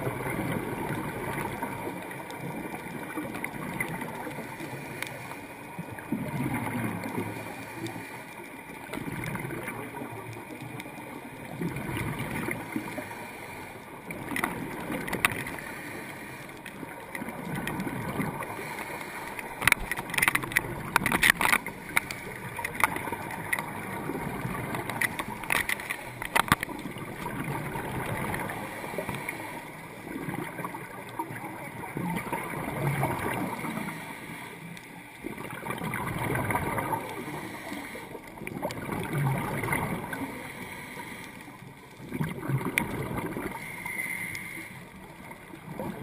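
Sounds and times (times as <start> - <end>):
underwater regulator bubbles gurgling: 0.0 - 46.0
sharp clicks: 19.3 - 23.7, 24.8 - 26.8.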